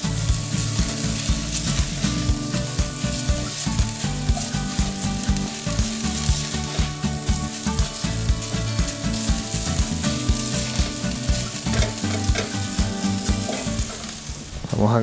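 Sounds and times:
chicken and onion sizzling in pan: 0:00.0 - 0:15.0
spoon scraping and knocking pan: 0:10.4 - 0:14.3.

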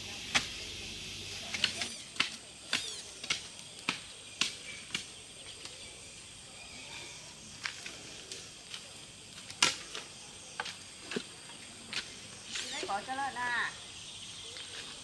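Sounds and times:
high-pitched hiss: 0:00.0 - 0:11.0.

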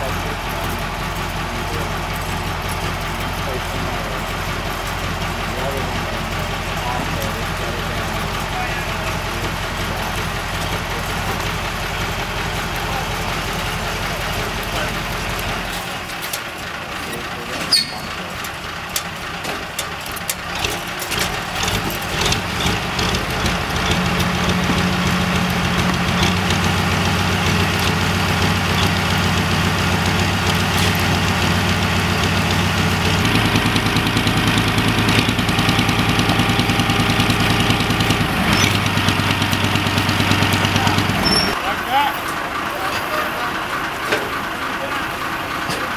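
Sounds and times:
metal clanks and knocks: 0:00.0 - 0:31.6
heavy diesel crane engine: 0:00.0 - 0:45.9.

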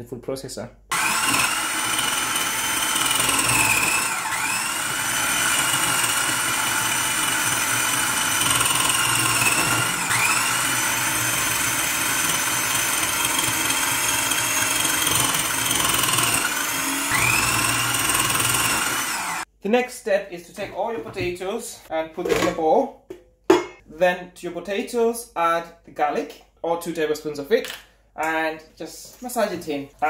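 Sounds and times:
food processor motor whine: 0:00.9 - 0:19.5.

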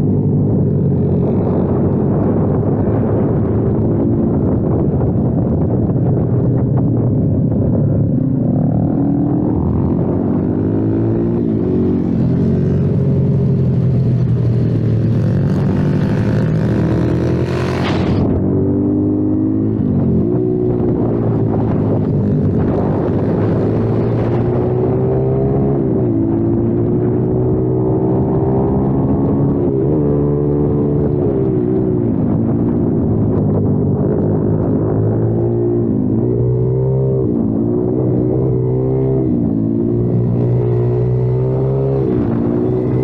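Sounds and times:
motorbike engine accelerating: 0:08.7 - 0:43.0.

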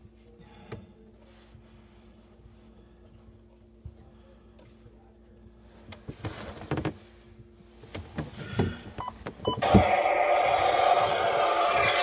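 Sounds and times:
water rushing through pipes: 0:09.7 - 0:12.0.

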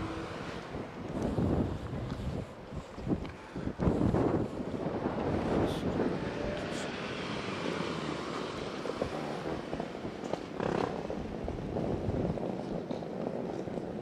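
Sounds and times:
vehicle rumble: 0:00.0 - 0:14.0.

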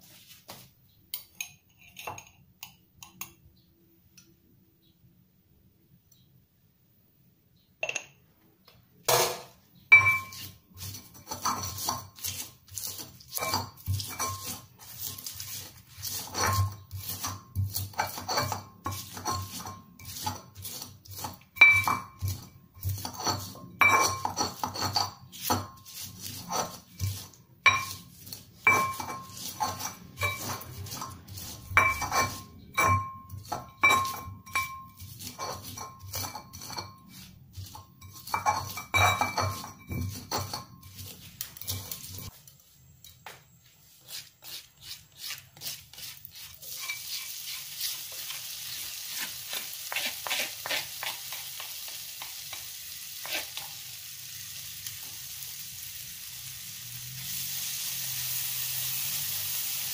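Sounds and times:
ceramic clinks: 0:07.8 - 0:08.2
pestle pounding in mortar: 0:10.0 - 0:41.2.

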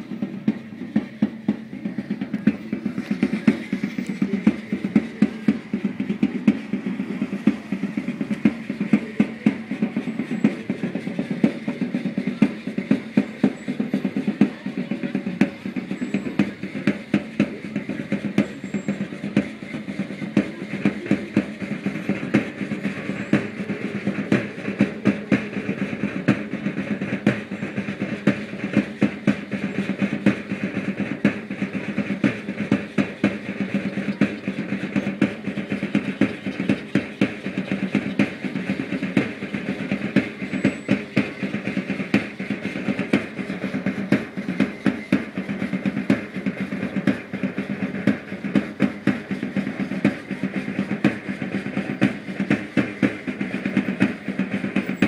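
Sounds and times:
drum beating steady rhythm: 0:00.0 - 0:55.0.

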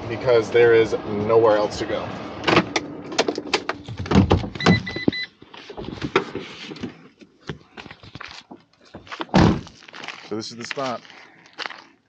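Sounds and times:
van door opening: 0:02.4 - 0:07.0, 0:08.9 - 0:09.7.

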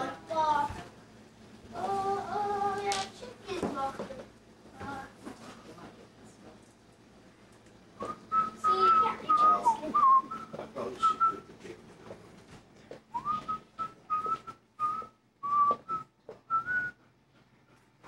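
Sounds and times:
person whistling a tune: 0:08.0 - 0:11.4, 0:13.1 - 0:17.0.

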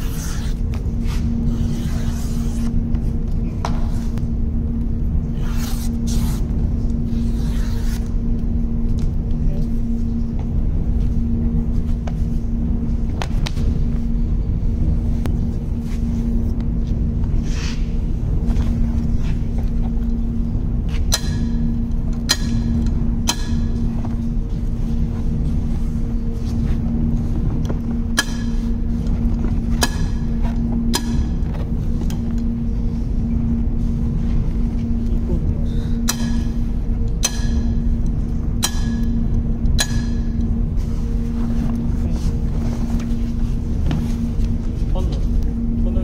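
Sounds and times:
constant rumble: 0:00.0 - 0:46.0
low machine hum: 0:00.0 - 0:46.0.

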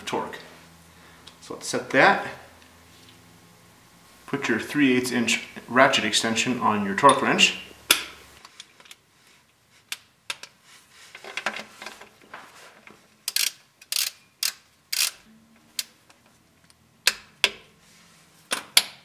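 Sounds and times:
torque wrench clicking: 0:13.2 - 0:15.2.

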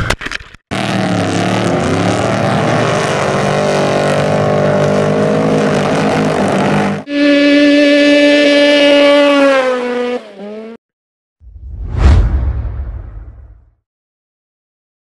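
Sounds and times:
race truck engines running hard: 0:00.7 - 0:07.1.

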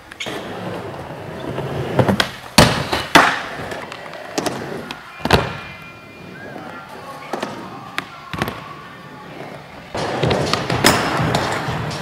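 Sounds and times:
skateboard wheels rolling: 0:00.0 - 0:12.0
skateboard impacts: 0:01.8 - 0:05.8, 0:09.9 - 0:12.0.

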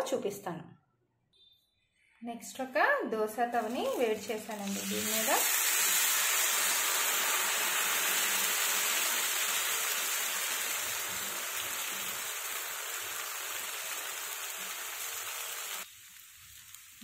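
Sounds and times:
batter sizzling on hot pan: 0:03.5 - 0:17.0.

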